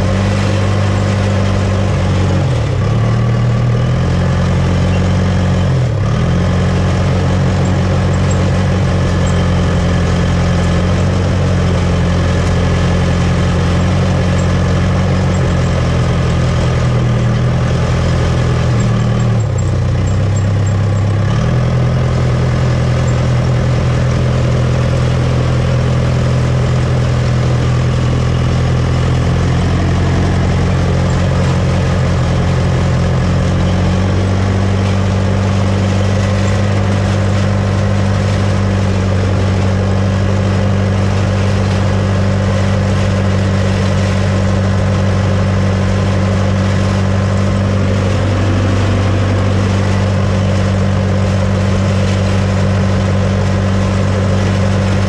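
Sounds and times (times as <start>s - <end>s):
dozer diesel engine running: 0.0s - 55.0s.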